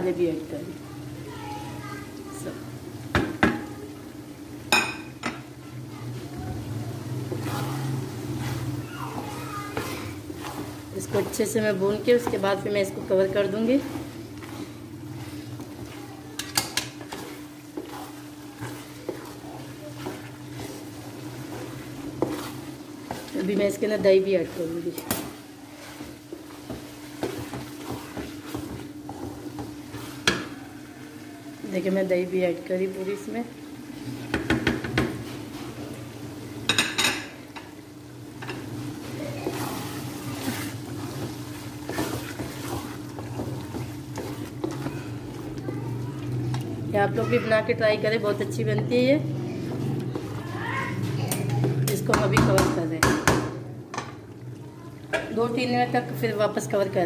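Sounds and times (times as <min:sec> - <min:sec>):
spatula scraping a metal pot: 0:07.3 - 0:30.3, 0:39.4 - 0:45.4.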